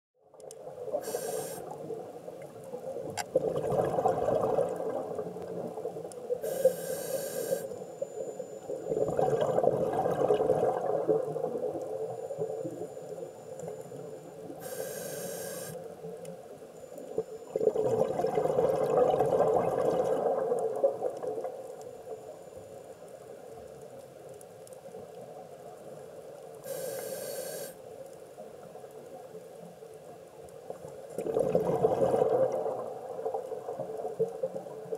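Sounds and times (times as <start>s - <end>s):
diver breathing through regulator: 1.0s - 1.7s, 6.4s - 7.8s, 14.6s - 15.8s, 26.6s - 27.8s
exhaled bubbles gushing: 3.3s - 6.0s, 8.8s - 12.1s, 17.5s - 21.5s, 31.1s - 34.8s.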